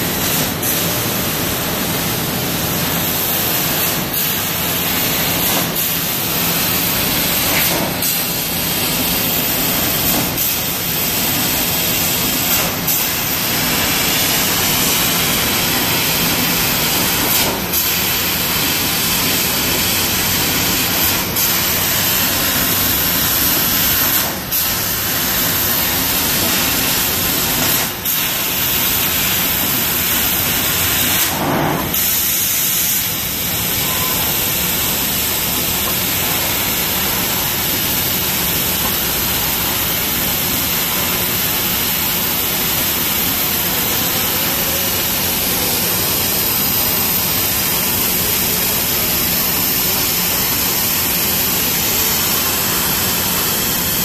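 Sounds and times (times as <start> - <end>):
laser cutter hissing: 0.0 - 54.0.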